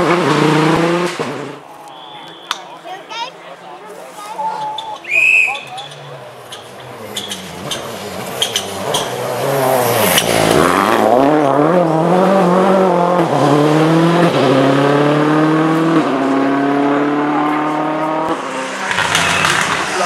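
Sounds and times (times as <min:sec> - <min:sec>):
rally car engine accelerating: 0:00.0 - 0:01.6, 0:05.9 - 0:20.0.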